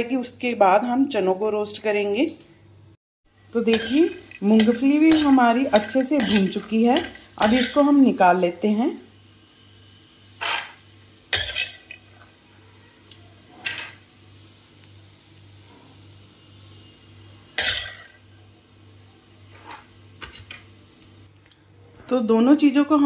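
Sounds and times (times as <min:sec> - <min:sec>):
metal ladle scraping pan: 0:03.6 - 0:08.0, 0:10.4 - 0:12.3.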